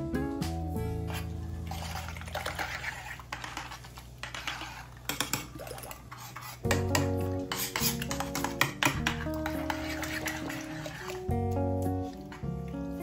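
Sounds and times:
background music: 0.0s - 2.1s, 6.6s - 13.0s
utensil clinking and scraping pot: 1.0s - 12.5s
liquid swishing: 1.1s - 6.8s, 9.1s - 12.4s.

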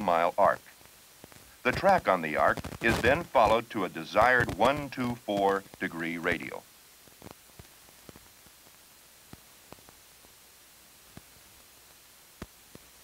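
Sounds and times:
film soundtrack hiss: 0.0s - 13.0s
clicks and pops: 0.8s - 3.6s, 4.2s - 5.9s.

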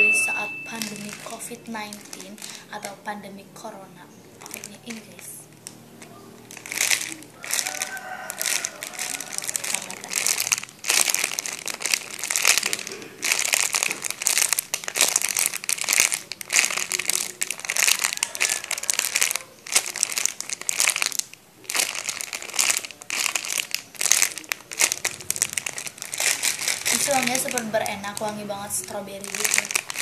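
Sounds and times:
plastic packaging crinkling: 0.0s - 30.0s.

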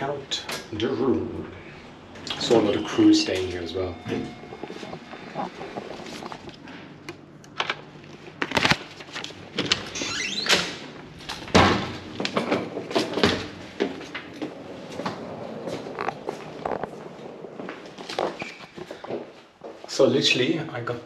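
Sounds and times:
door squeak: 2.3s - 5.7s, 9.9s - 10.8s, 18.2s - 18.8s.

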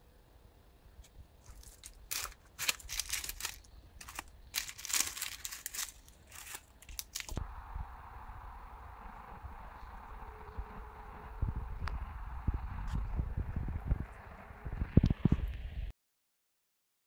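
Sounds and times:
pastry and paper crackling: 1.4s - 7.4s.

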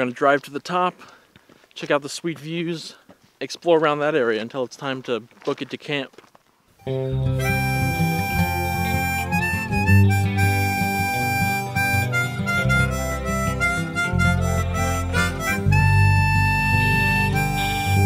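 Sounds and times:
harmonica melody over rhythm: 6.8s - 18.0s.

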